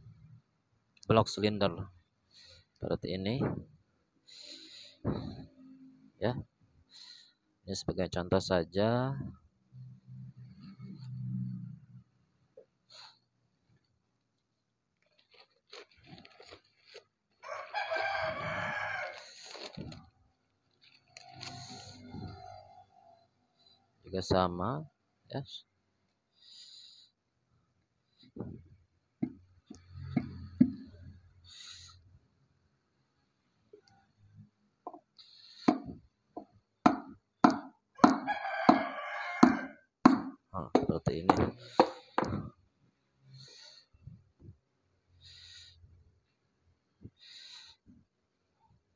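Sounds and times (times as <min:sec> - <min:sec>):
rooster crowing: 0:17.4 - 0:19.3, 0:38.0 - 0:39.8
hammer knocking on wooden block: 0:35.7 - 0:42.4.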